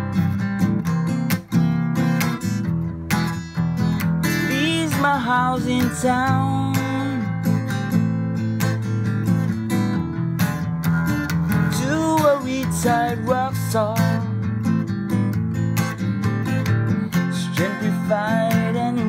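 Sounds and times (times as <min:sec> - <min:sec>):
acoustic guitar strumming: 0:00.0 - 0:19.0
man singing: 0:04.2 - 0:07.7, 0:11.6 - 0:14.5, 0:17.1 - 0:19.0.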